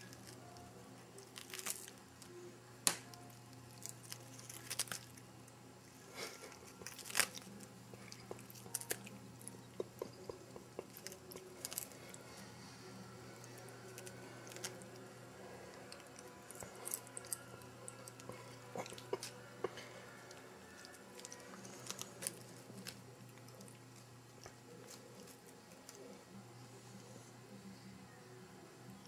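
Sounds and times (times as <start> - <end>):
cat crunching lettuce leaf: 1.2 - 2.0, 3.4 - 5.2, 6.2 - 12.2, 13.4 - 15.1, 15.7 - 26.2.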